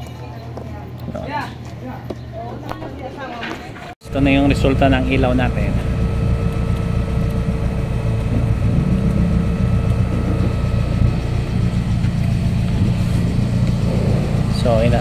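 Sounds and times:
car engine idling: 4.0 - 15.0.

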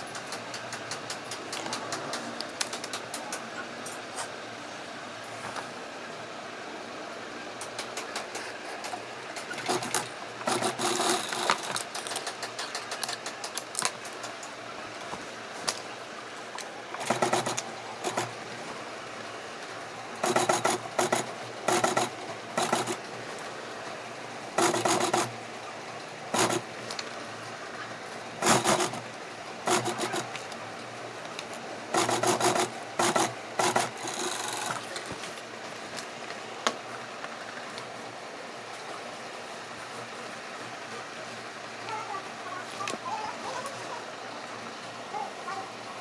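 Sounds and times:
sewing machine stitching: 8.0 - 13.5, 17.0 - 18.4, 20.2 - 23.0, 24.6 - 25.4, 26.3 - 26.7, 28.4 - 30.4, 31.9 - 35.2.

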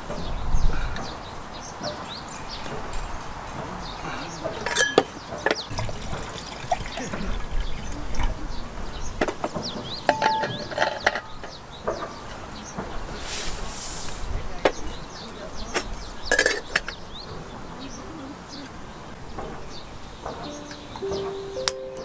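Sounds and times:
birds chirping: 0.0 - 22.0
liquid pouring into kettle: 5.7 - 8.3.

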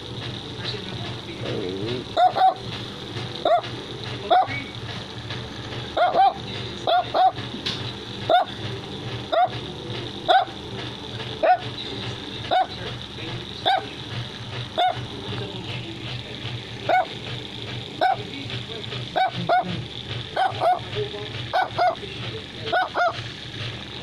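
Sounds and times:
dog barking: 2.2 - 2.6, 3.4 - 3.6, 4.3 - 4.6, 6.0 - 7.4, 8.3 - 8.6, 9.3 - 9.6, 10.3 - 10.6, 11.4 - 11.7, 12.5 - 12.8, 13.6 - 13.9, 14.8 - 15.0, 16.9 - 17.2, 18.0 - 18.3, 19.2 - 19.8, 20.4 - 20.9, 21.5 - 22.0, 22.7 - 23.2.

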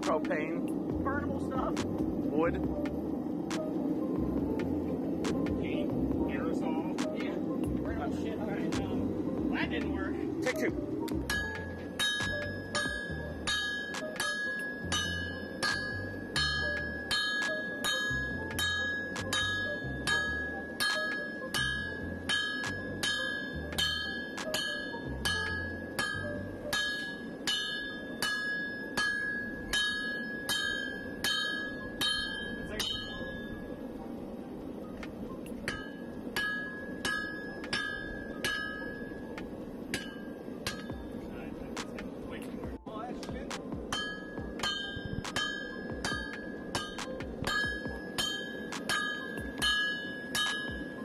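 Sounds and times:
sledgehammer striking hot steel: 9.6 - 33.5, 35.5 - 41.9, 43.2 - 51.0
anvil ringing: 11.3 - 33.5, 35.6 - 39.3, 39.9 - 41.3, 43.9 - 51.0.

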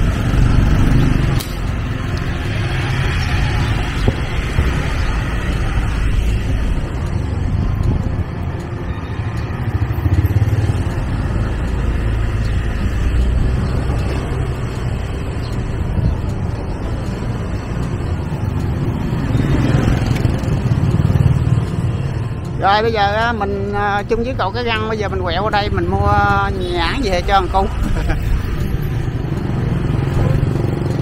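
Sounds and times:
road and wind noise: 0.0 - 31.0
motorbike engine running: 9.4 - 12.4, 13.0 - 22.3, 27.5 - 31.0.

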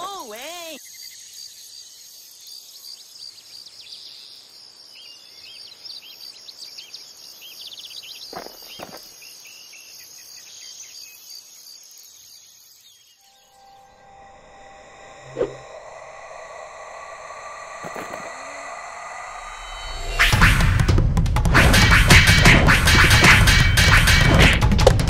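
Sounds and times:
crickets chirping: 0.0 - 20.6
quick rising calls: 13.2 - 21.1.

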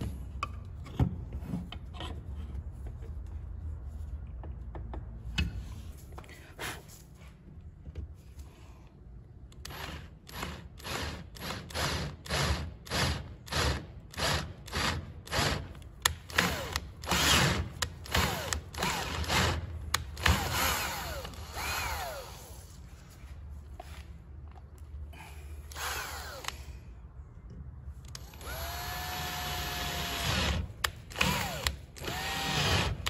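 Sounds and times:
cordless drill whining: 20.2 - 22.5, 25.7 - 26.6, 28.2 - 30.6, 31.2 - 33.0.

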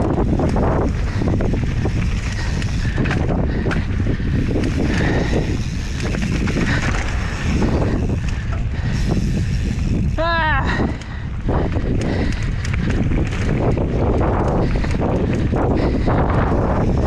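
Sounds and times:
bike clattering over stones: 0.0 - 10.0
wind buffeting on microphone: 0.0 - 17.0.

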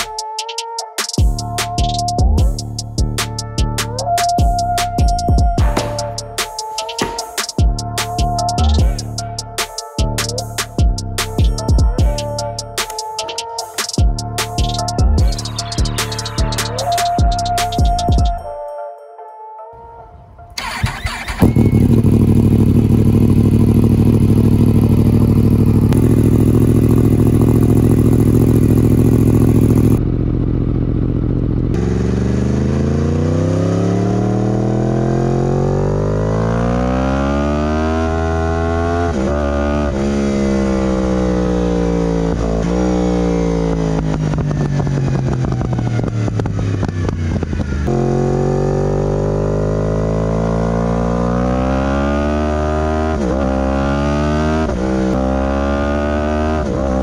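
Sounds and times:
motorcycle engine revving: 5.6 - 9.0, 20.1 - 57.0.

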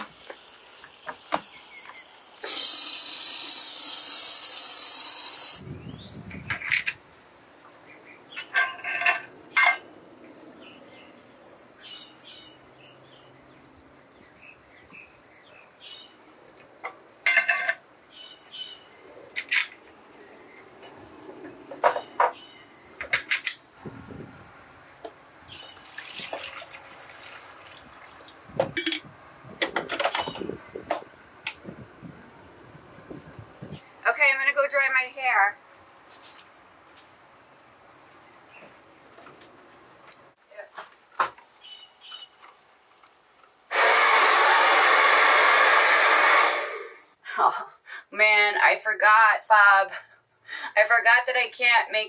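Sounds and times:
liquid pouring: 25.8 - 28.4
hair dryer blowing air: 43.7 - 47.0.

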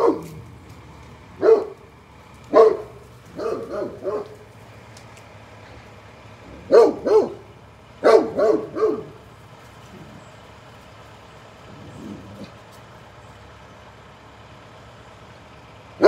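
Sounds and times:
dog barking deeply: 0.0 - 0.5, 1.4 - 1.9, 2.5 - 4.4, 6.5 - 9.3.

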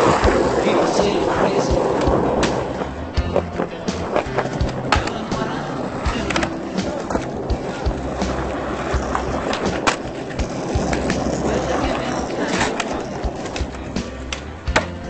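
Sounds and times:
skateboard clacks: 0.0 - 15.0
skateboard wheels rolling on asphalt: 0.0 - 15.0.

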